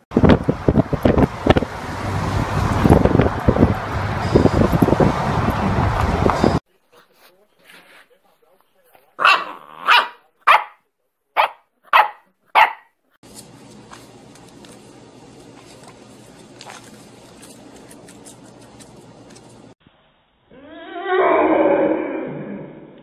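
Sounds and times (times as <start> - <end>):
puppy barking: 9.2 - 10.8, 11.4 - 13.0.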